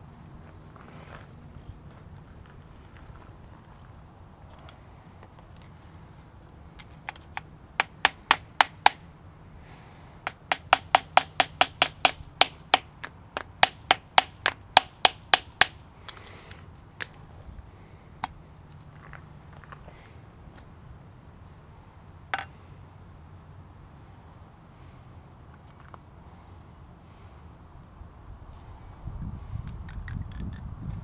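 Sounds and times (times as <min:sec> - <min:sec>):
hammer tapping steel punch: 0:10.3 - 0:15.8.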